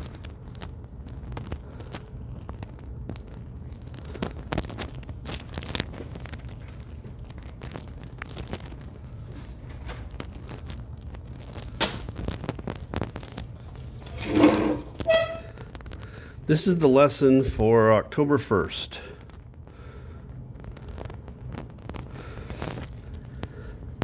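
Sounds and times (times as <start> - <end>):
steady low hum: 0.0 - 24.0.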